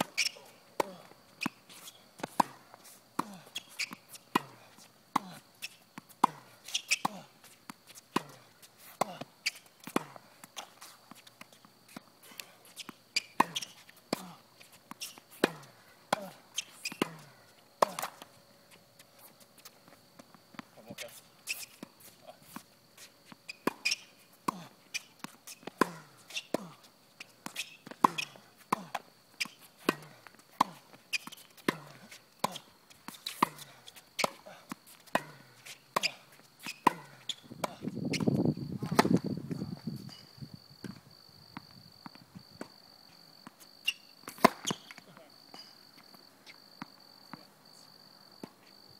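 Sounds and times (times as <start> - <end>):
tennis ball bouncing on court: 2.2 - 2.6, 6.0 - 8.4, 12.8 - 14.3, 14.9 - 18.3, 23.4 - 26.7, 27.4 - 39.3, 43.4 - 45.0
tennis ball hit by rackets: 2.2 - 2.6, 3.2 - 5.3, 6.2 - 8.4, 13.4 - 14.3, 15.3 - 18.2, 27.4 - 32.6, 34.2 - 39.2, 44.3 - 45.0
tennis ball hit with rackets: 27.9 - 30.8, 35.1 - 37.8, 44.3 - 45.0.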